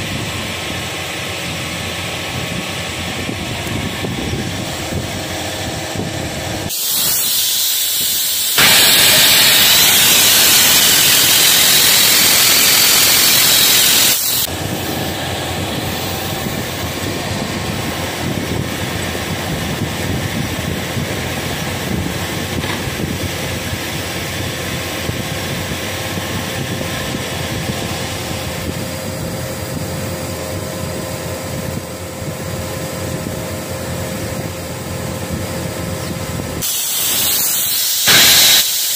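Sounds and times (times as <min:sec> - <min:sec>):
spray-welding torch hissing: 0:06.7 - 0:15.0, 0:36.6 - 0:38.9.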